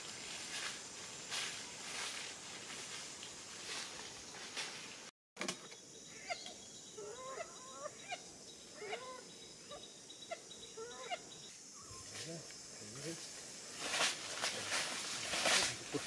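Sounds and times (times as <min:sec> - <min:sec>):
steady background hiss: 0:05.8 - 0:16.0
parrot calling: 0:08.8 - 0:09.8.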